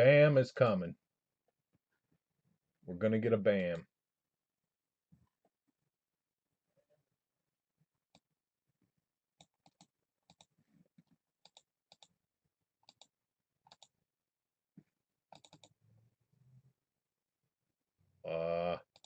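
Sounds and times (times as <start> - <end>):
computer mouse clicks: 9.4 - 10.5, 11.4 - 12.1, 12.8 - 13.1, 13.7 - 13.9, 15.3 - 15.8.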